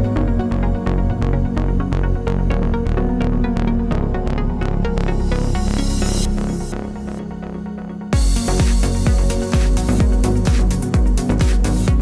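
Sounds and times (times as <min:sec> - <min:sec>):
electronic dance music: 0:08.1 - 0:12.0
steady kick drum: 0:08.2 - 0:12.0.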